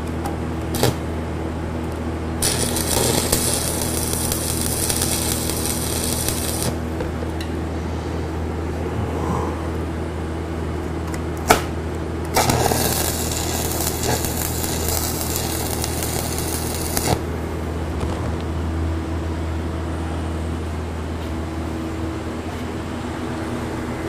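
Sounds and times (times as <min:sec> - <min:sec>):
steady low hum: 0:00.0 - 0:24.0
welding arc crackling and hissing: 0:00.7 - 0:01.0, 0:02.4 - 0:06.8, 0:12.3 - 0:17.3.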